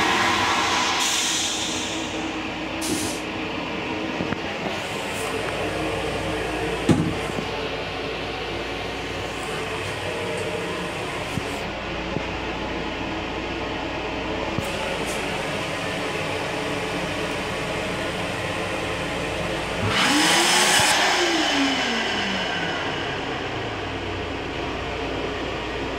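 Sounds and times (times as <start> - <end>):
electric hand dryer running: 0.0 - 2.3
railcar running noise: 0.0 - 19.9, 20.9 - 25.9.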